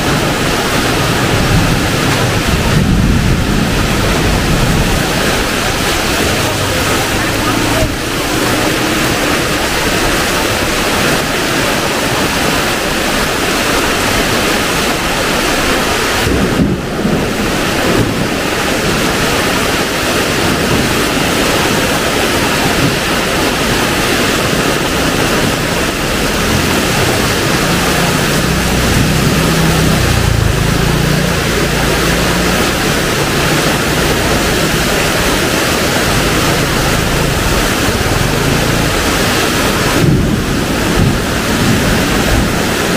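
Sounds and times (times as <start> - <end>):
low rumble: 0.0 - 11.0
heavy rain: 0.0 - 42.9.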